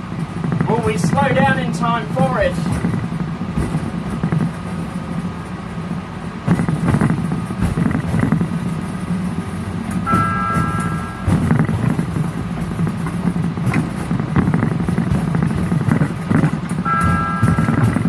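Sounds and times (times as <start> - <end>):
miniature train humming: 0.0 - 18.0
held beep: 10.1 - 11.2, 16.9 - 17.8.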